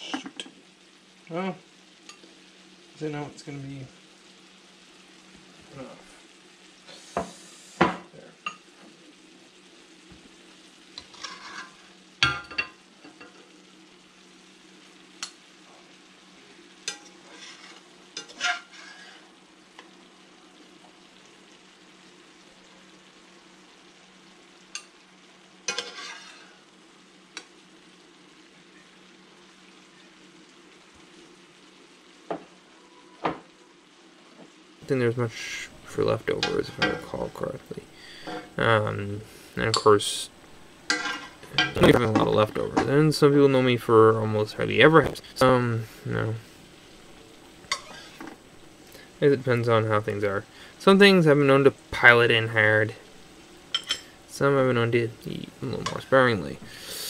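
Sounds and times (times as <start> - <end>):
metal utensil scraping skillet: 0.0 - 0.6, 11.0 - 13.5, 16.8 - 19.3, 25.6 - 26.6, 35.5 - 37.2, 38.0 - 38.6, 40.8 - 42.9, 47.6 - 48.4, 53.7 - 54.2
faint steady sizzle: 0.0 - 57.0.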